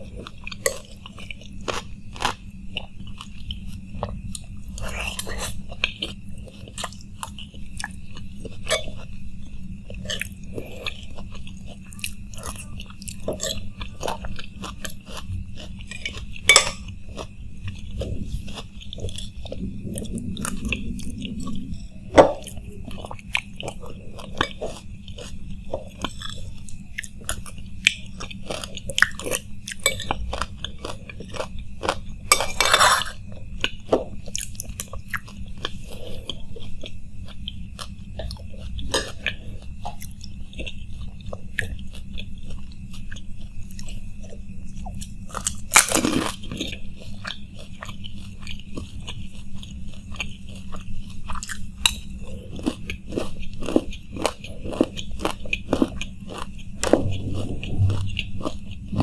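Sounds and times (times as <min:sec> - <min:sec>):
man chewing with wet mouth sounds: 0:00.0 - 0:59.0
metal spoon scraping ceramic plate: 0:15.9 - 0:16.8, 0:32.3 - 0:33.2.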